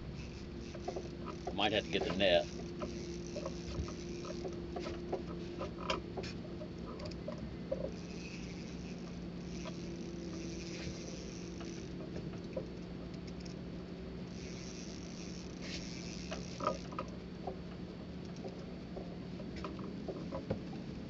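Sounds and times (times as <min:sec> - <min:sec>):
steady low hum: 0:00.0 - 0:21.0
fishing reel clicking: 0:00.1 - 0:13.6, 0:14.2 - 0:17.2.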